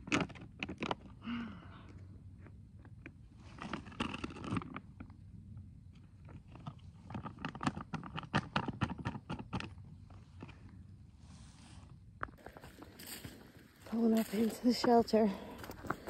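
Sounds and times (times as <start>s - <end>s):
dry leaves crunching: 12.4s - 16.0s.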